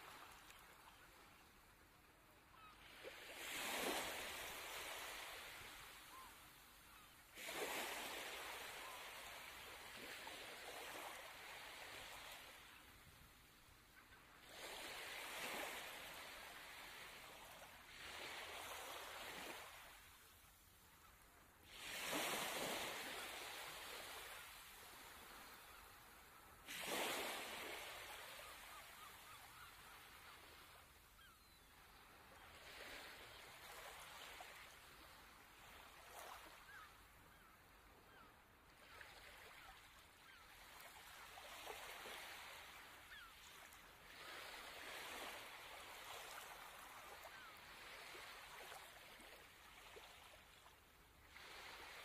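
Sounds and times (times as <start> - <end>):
small waves washing on sand: 2.6 - 13.6, 14.2 - 31.0, 38.8 - 52.0.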